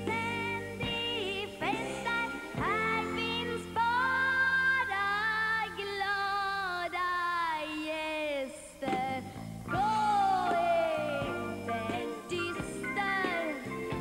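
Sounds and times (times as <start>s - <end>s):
backing band: 0.0s - 3.8s, 8.9s - 14.0s
girl singing: 0.0s - 14.0s.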